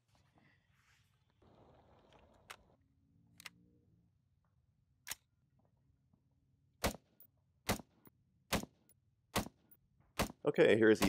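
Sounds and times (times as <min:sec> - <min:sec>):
rifle shots: 0:06.8 - 0:07.1, 0:07.7 - 0:07.9, 0:09.4 - 0:09.6, 0:10.2 - 0:10.4.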